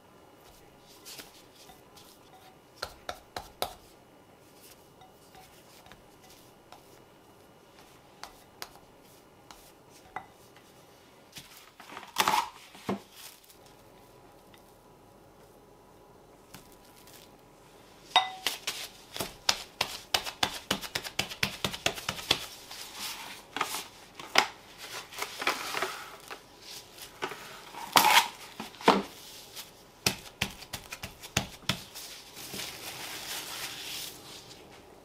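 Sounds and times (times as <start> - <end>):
cling film and plastic gloves crinkling: 11.3 - 14.4, 16.4 - 17.4, 18.4 - 34.9.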